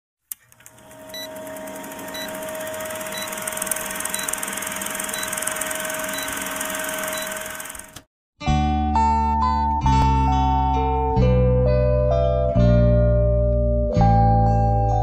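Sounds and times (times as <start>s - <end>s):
film projector rattling and humming: 0.3s - 8.1s.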